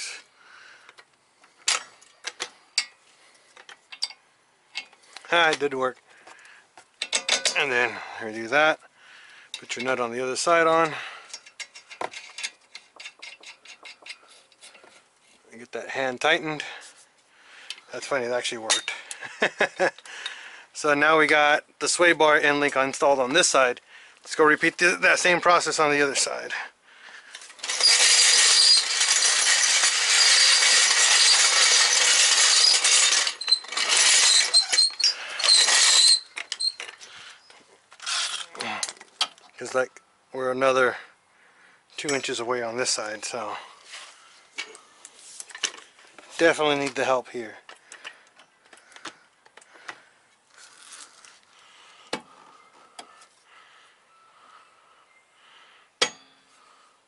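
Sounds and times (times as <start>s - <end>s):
hand tools clicking and scraping: 0.8s - 8.1s, 9.4s - 15.4s, 16.5s - 20.4s, 24.2s - 39.8s, 42.0s - 53.5s
floor jack wheels rattling over stones: 6.9s - 8.7s, 27.3s - 39.3s
light metal clanks: 7.0s - 7.8s, 10.8s - 15.0s.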